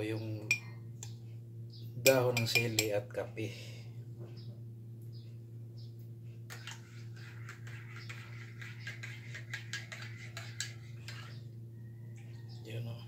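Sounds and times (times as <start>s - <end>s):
steady low hum: 0.0s - 13.0s
teaspoon clinking against a mug: 0.5s - 0.7s, 2.1s - 3.0s.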